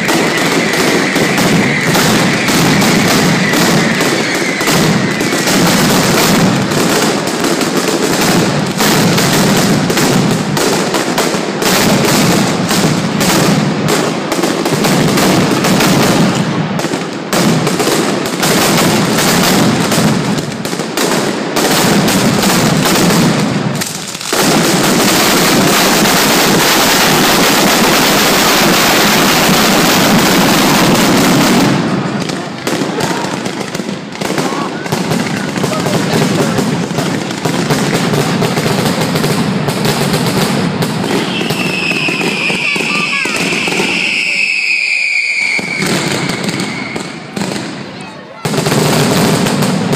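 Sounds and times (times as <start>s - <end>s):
firecrackers banging rapidly: 0.0s - 49.9s.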